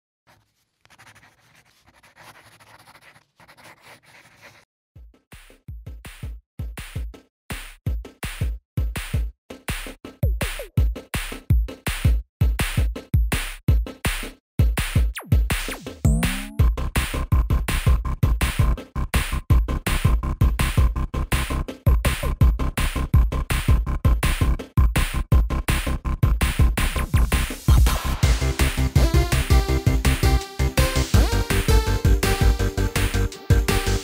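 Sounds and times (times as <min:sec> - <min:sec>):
upbeat electronic music: 0:15.2 - 0:16.8, 0:26.8 - 0:34.0.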